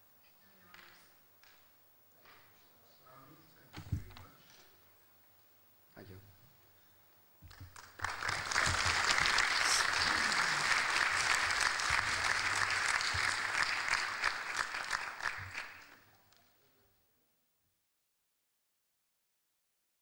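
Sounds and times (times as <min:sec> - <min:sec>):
audience applauding: 0:07.5 - 0:16.1.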